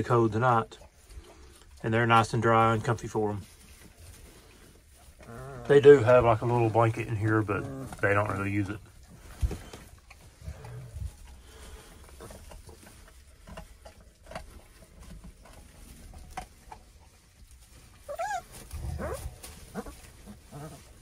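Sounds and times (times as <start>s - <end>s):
rustling in wood chips: 0.0s - 21.0s
puppies whining and yelping: 5.1s - 6.0s, 18.0s - 21.0s.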